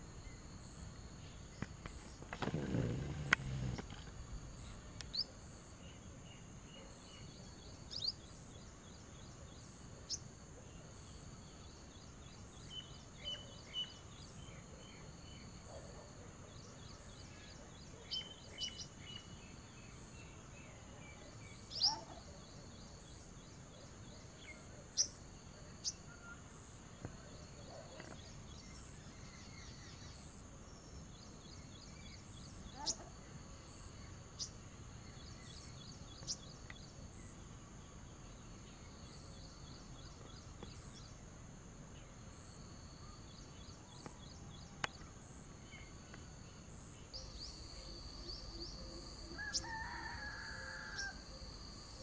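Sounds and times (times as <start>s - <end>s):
small birds chirping: 0.2s - 41.4s.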